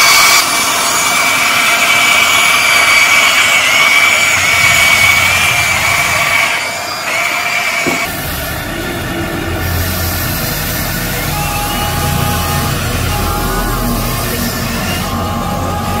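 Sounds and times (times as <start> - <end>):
toy electric motors whining: 0.0 - 8.6, 9.5 - 16.0.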